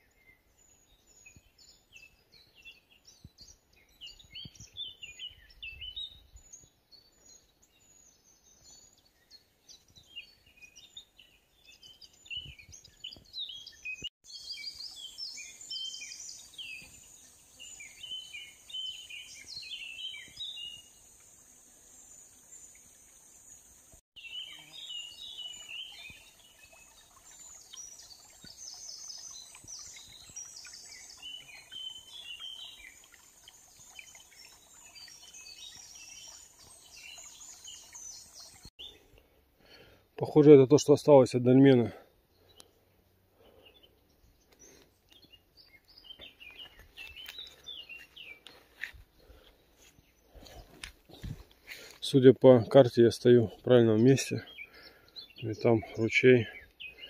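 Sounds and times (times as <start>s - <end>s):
songbirds chirping and singing: 0.0s - 57.0s.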